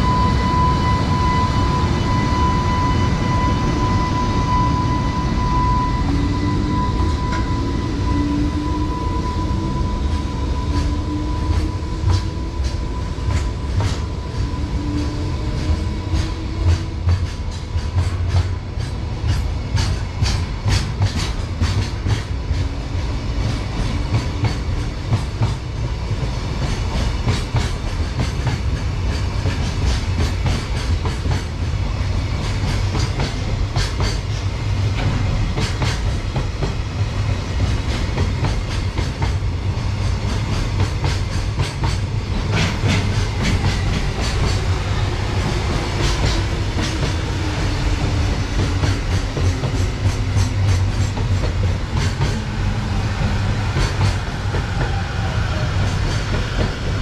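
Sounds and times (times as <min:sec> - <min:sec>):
train wheels rumbling on rail: 0:00.0 - 0:57.0.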